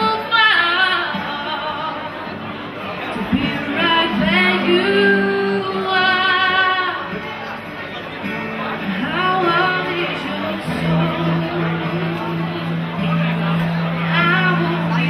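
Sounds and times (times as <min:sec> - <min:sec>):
woman singing with vibrato: 0:00.0 - 0:02.4, 0:03.2 - 0:07.1, 0:09.0 - 0:12.8, 0:14.1 - 0:15.0
acoustic guitar: 0:00.0 - 0:15.0.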